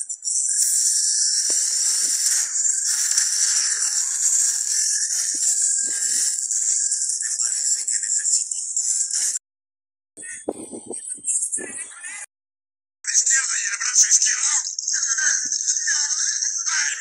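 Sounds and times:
loud steady hiss: 0:00.3 - 0:07.9
faint crackles and knocks: 0:10.2 - 0:11.7.

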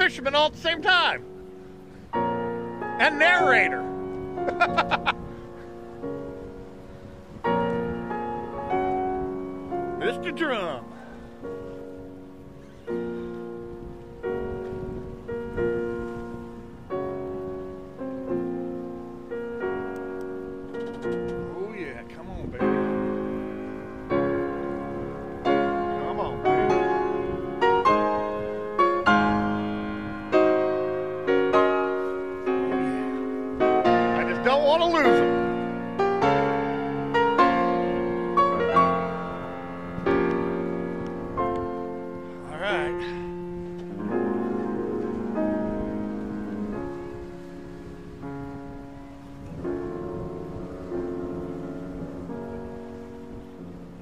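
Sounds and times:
slow piano chords: 0:00.0 - 0:54.0.

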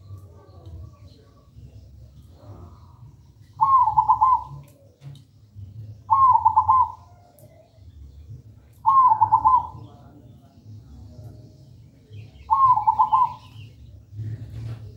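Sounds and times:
dove cooing: 0:03.5 - 0:05.0, 0:06.0 - 0:07.4, 0:08.8 - 0:09.9, 0:12.4 - 0:13.7.

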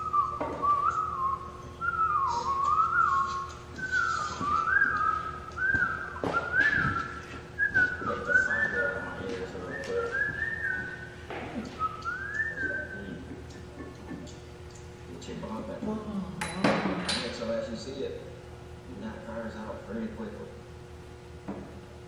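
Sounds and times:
person whistling a tune: 0:00.0 - 0:08.9, 0:09.7 - 0:11.1, 0:11.8 - 0:13.1.

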